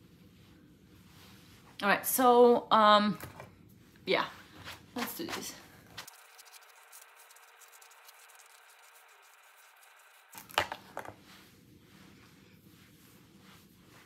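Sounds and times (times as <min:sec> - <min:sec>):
hair rustling: 0:03.7 - 0:14.0
hairbrush brushing hair: 0:04.0 - 0:14.0.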